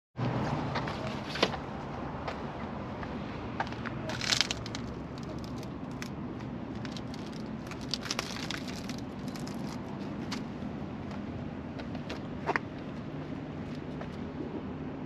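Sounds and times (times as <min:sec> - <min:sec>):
low outdoor hum: 0:00.2 - 0:15.0
light clicks and rustles: 0:03.6 - 0:10.5.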